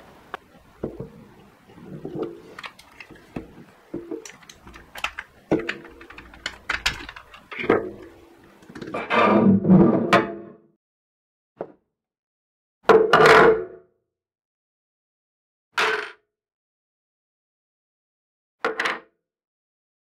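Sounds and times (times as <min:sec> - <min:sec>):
plastic parts clacking: 0:01.9 - 0:09.0.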